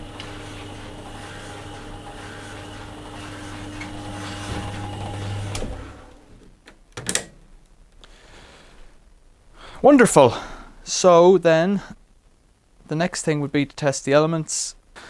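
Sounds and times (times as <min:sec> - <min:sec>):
tumble dryer motor humming: 0:00.0 - 0:06.3.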